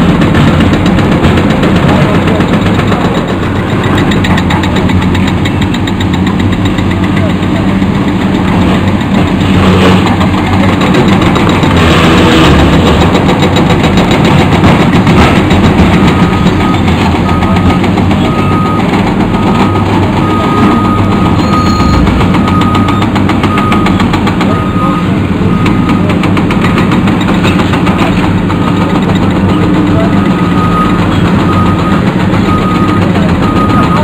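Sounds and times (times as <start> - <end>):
excavator diesel engines: 0.0 - 34.0
reversing alarm beeping: 16.0 - 26.2, 30.0 - 34.0.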